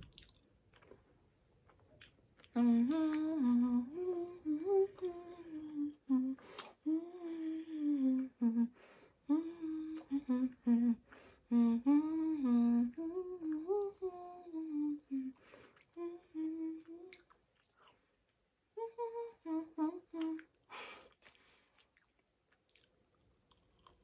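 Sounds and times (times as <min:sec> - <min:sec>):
woman humming: 0:02.6 - 0:17.2, 0:18.8 - 0:20.5.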